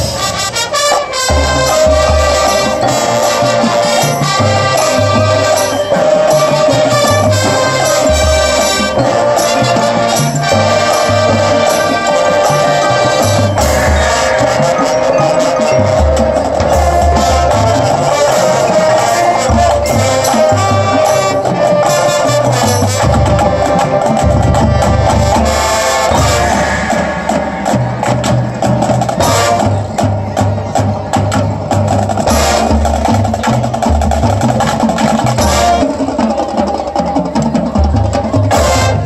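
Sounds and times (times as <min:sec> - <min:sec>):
brass and woodwind notes: 0:00.0 - 0:39.0
drums and tapping percussion: 0:00.0 - 0:39.0.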